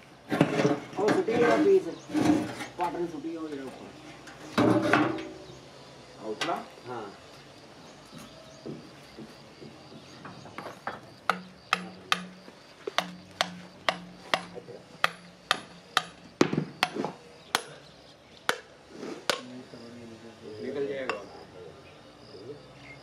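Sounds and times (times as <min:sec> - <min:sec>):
hammer striking steel: 0:13.0 - 0:16.2.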